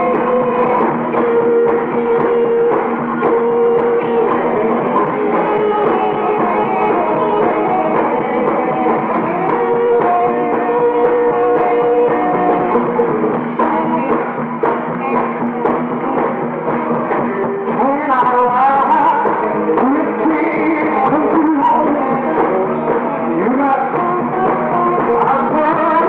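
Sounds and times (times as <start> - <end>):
drum kit beat: 0.0 - 26.0
electric guitar: 0.0 - 26.0.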